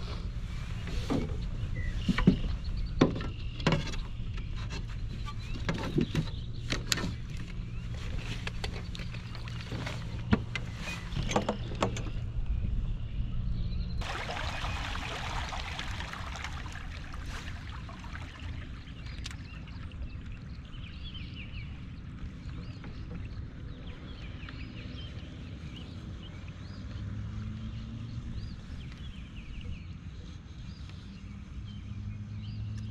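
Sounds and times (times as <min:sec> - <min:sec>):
water rushing: 0:14.0 - 0:20.8
wind noise: 0:14.0 - 0:21.9.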